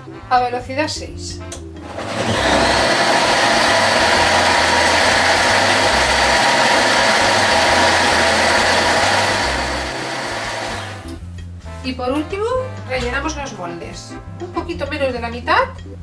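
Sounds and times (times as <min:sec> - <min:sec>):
food processor motor whirring: 0:01.8 - 0:11.2.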